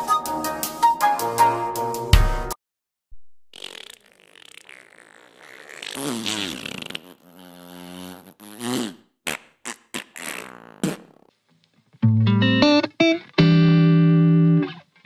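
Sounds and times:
comic fart sounds: 0:03.5 - 0:11.3.

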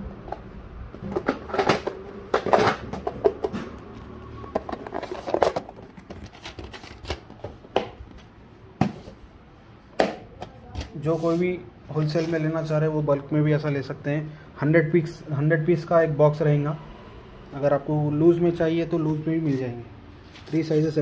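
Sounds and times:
plastic boxes clicking and knocking: 0:00.2 - 0:08.2.

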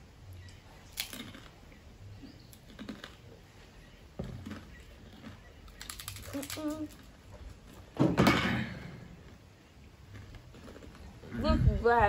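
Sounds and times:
chewing crackers: 0:00.8 - 0:01.6, 0:02.2 - 0:07.9, 0:09.2 - 0:11.4.

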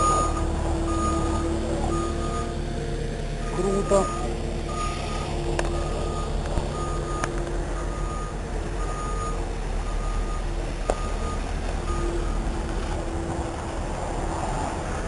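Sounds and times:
reversing alarm beeping: 0:00.0 - 0:02.6, 0:03.4 - 0:12.5
engine drone: 0:00.0 - 0:15.0.

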